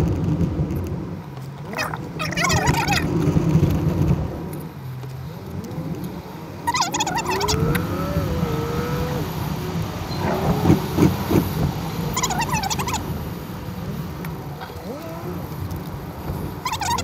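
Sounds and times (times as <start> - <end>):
car engine and road noise: 0.0 - 17.0
rising then falling tone: 5.5 - 11.0
rapid warbling sound: 6.6 - 9.1.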